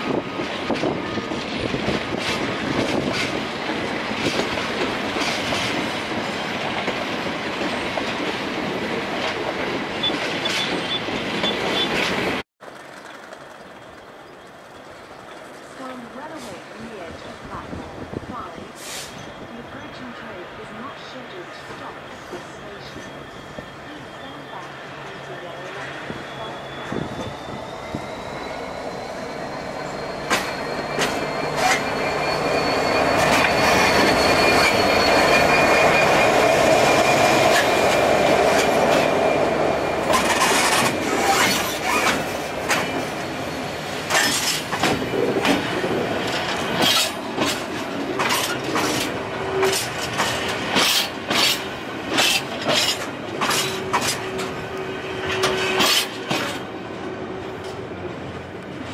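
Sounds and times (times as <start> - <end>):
diesel locomotive engine: 0.0 - 58.9
wagons rattling past: 12.0 - 17.0
wheel clanks and clicks: 12.6 - 15.6
high-pitched wheel squeal: 22.1 - 45.4.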